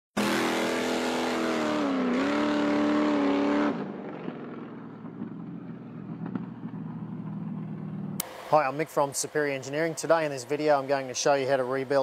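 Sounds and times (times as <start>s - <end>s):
rushing road noise: 0.2s - 11.6s
vehicle engine running under load: 0.2s - 12.0s.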